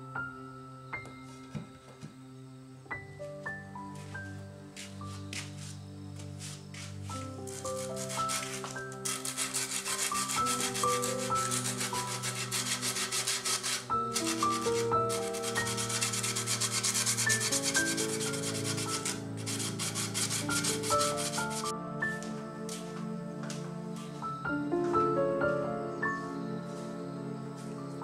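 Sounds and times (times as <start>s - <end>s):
soft background music: 0.0s - 28.0s
sandpaper rubbing wood: 4.8s - 21.7s.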